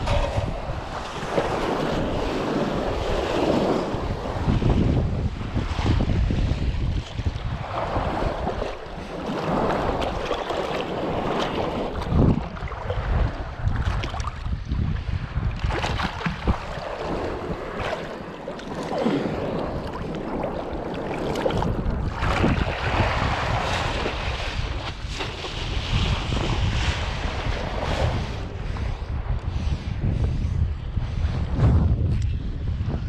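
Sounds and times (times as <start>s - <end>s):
water sloshing and splashing: 0.0s - 4.6s, 6.8s - 28.2s
wind buffeting microphone: 0.0s - 33.0s.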